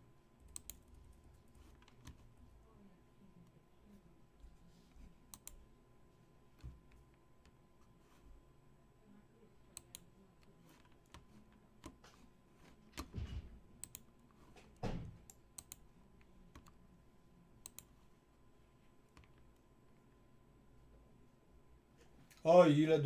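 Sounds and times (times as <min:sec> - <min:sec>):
keyboard and mouse clicks: 0:00.4 - 0:01.0, 0:05.3 - 0:05.6, 0:12.9 - 0:15.8, 0:17.6 - 0:17.9.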